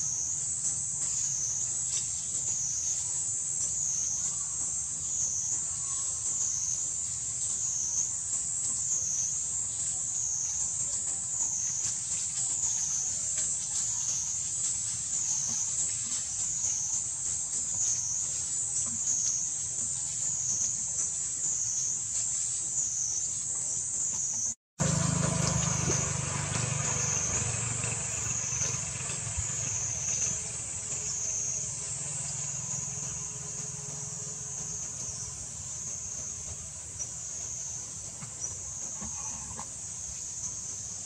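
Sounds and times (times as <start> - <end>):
insect chorus drone: 0.0 - 41.0.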